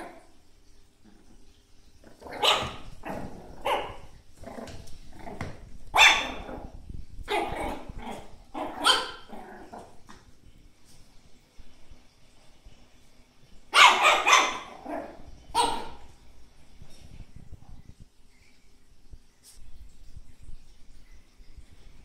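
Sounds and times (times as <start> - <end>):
puppy barking: 2.2 - 4.2, 5.9 - 9.8, 13.7 - 16.1.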